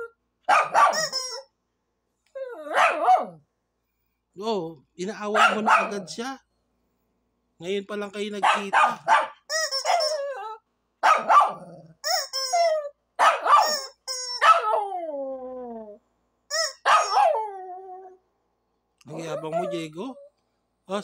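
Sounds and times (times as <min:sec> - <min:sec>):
small dog barking: 0:00.5 - 0:01.2, 0:02.6 - 0:03.4, 0:05.3 - 0:06.2, 0:08.4 - 0:10.2, 0:11.0 - 0:11.9, 0:13.2 - 0:13.8, 0:14.4 - 0:14.9, 0:16.8 - 0:17.4
rubber chicken toy squawking: 0:00.5 - 0:01.5, 0:09.5 - 0:10.6, 0:12.0 - 0:14.8, 0:16.5 - 0:17.4.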